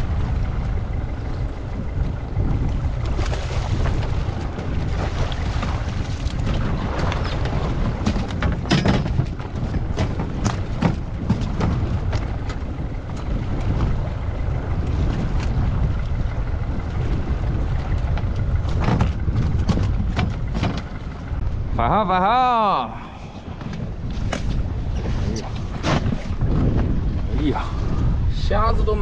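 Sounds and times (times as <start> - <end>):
wind rumbling on microphone: 0.0 - 29.0
sharp knocks and clicks: 18.1 - 21.0.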